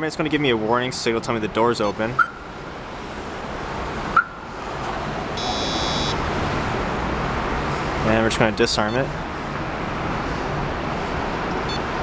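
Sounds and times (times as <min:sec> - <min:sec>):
steady rushing background noise: 0:02.3 - 0:12.0
alarm chirp: 0:05.4 - 0:06.2
buzzy electronic beep: 0:05.4 - 0:06.2.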